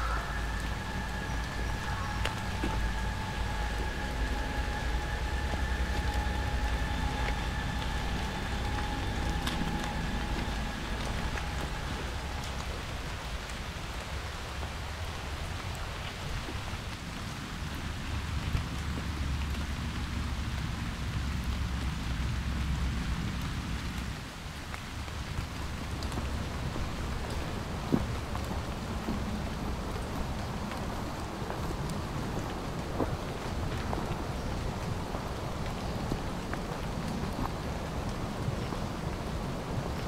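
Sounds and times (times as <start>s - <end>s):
faint steady tone: 0.0s - 14.7s
low rumble: 0.0s - 15.0s
steady hiss of water: 0.0s - 40.0s.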